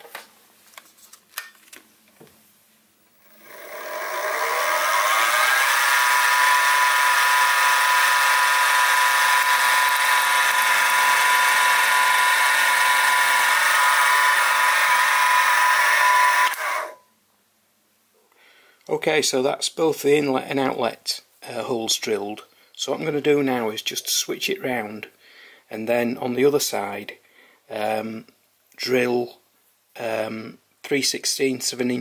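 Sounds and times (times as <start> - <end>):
drill boring metal: 3.0 - 17.0
mill spindle whine: 3.0 - 17.0.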